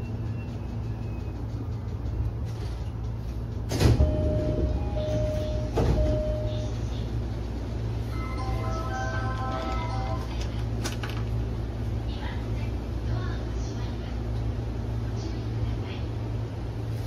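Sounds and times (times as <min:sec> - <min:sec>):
train humming: 0:00.0 - 0:17.0
door warning beeps: 0:03.8 - 0:06.9.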